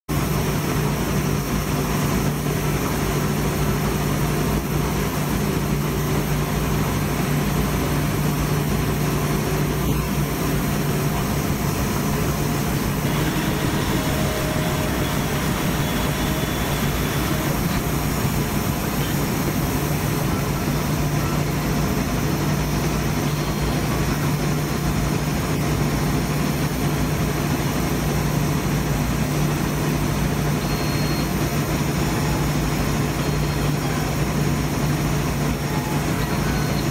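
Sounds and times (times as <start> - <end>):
laser cutter humming: 0.2 - 26.6
rush of air: 8.3 - 22.6.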